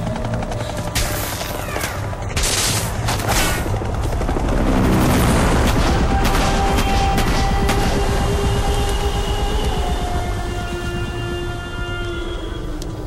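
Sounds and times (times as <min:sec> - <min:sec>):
rapid gunfire: 0:04.9 - 0:08.6.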